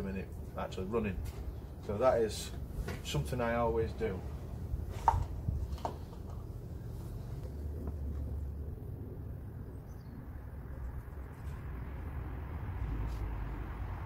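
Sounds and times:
wind rumbling on microphone: 4.2s - 14.0s.

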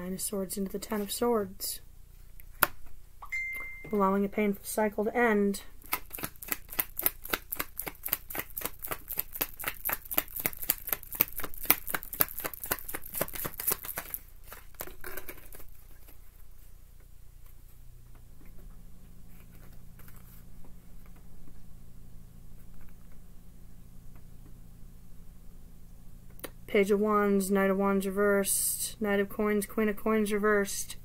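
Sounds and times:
cards being shuffled: 5.8s - 16.5s, 19.3s - 21.2s
faint card handling: 5.8s - 16.7s, 19.3s - 21.6s.

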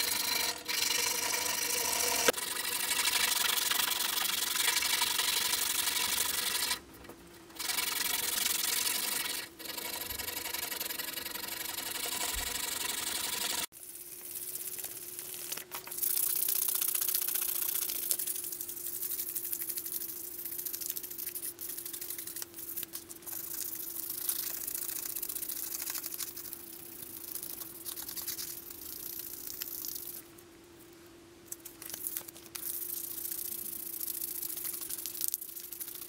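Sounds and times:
sandpaper rasping on steel: 0.0s - 6.8s, 7.6s - 13.7s
faint steady hum: 0.0s - 36.0s.

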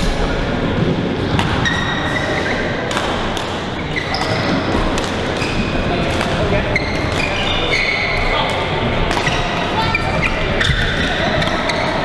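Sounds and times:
rackets hitting shuttlecock: 1.2s - 7.6s, 8.4s - 12.0s
shoes squeaking on court floor: 1.6s - 2.8s, 3.7s - 6.0s, 6.6s - 12.0s.

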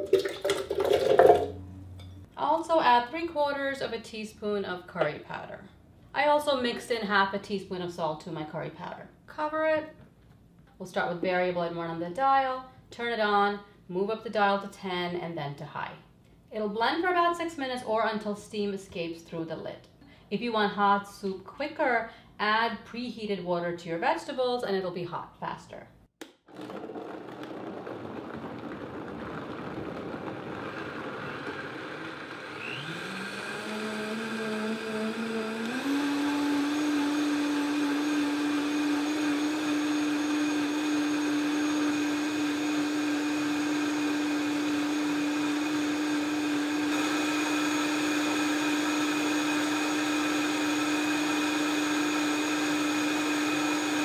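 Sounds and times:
blender motor whine: 26.5s - 54.0s.

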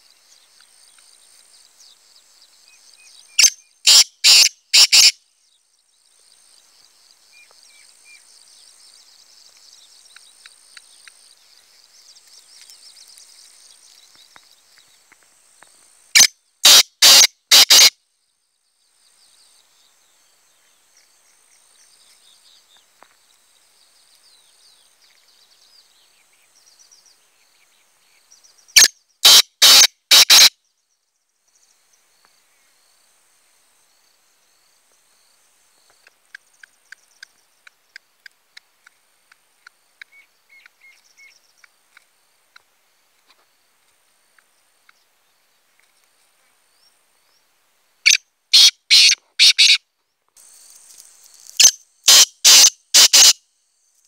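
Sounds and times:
bird harsh grating call: 3.4s - 5.1s, 16.2s - 17.9s, 29.2s - 30.5s, 48.1s - 49.8s, 51.6s - 53.4s
soft ticks: 9.5s - 11.2s
faint high chirping: 46.4s - 54.0s.

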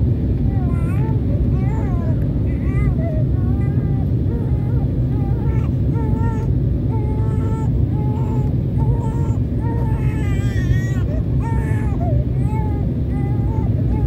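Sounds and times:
jet engine roar in cabin: 0.0s - 14.0s.

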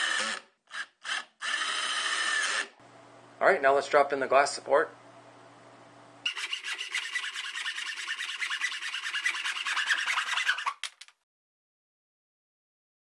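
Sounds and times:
hand saw cutting wood: 6.3s - 11.0s.

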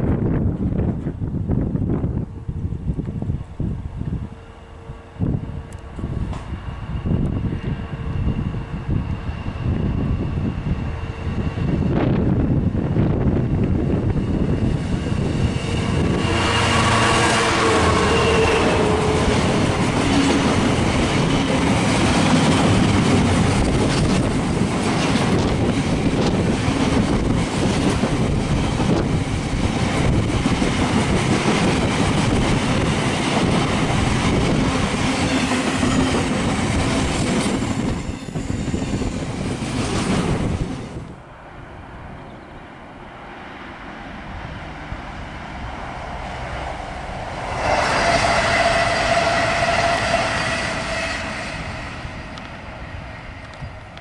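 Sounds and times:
train wheels clattering over rails: 17.8s - 40.6s.

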